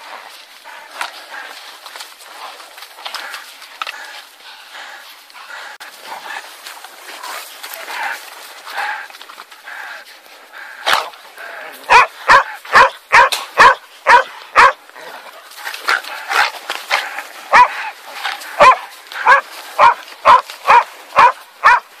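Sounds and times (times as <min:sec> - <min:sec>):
dogs barking: 0:10.6 - 0:22.0.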